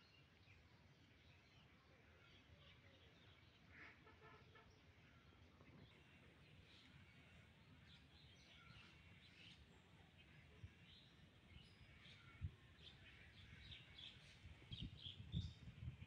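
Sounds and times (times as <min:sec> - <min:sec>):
small birds chirping: 0:05.2 - 0:16.0.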